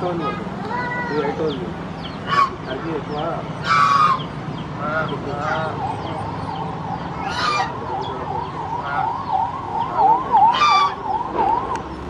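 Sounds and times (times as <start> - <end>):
geese honking: 2.0 - 12.0
siren wailing in fast yelp: 5.4 - 11.9.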